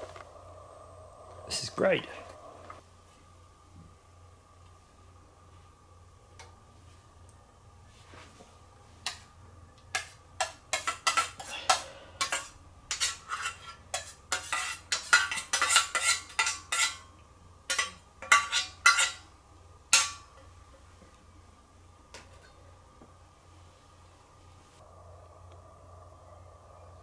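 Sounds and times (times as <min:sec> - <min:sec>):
metal spoon scraping and clinking: 0:10.0 - 0:17.1, 0:17.7 - 0:19.2.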